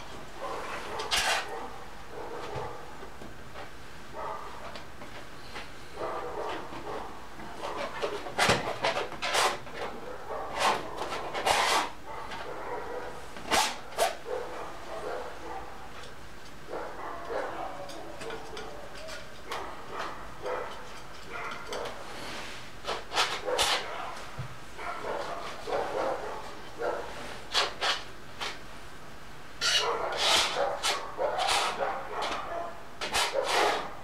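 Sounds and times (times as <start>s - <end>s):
dogs barking: 0.4s - 3.0s, 4.1s - 4.7s, 5.9s - 7.9s, 9.9s - 11.2s, 12.0s - 16.0s, 16.6s - 22.1s, 23.2s - 27.3s, 29.6s - 34.0s.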